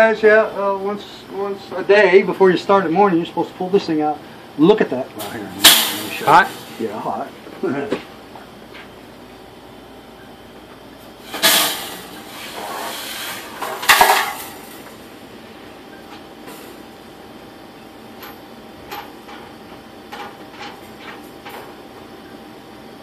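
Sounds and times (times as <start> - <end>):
metal clanking and scraping: 11.2 - 14.9.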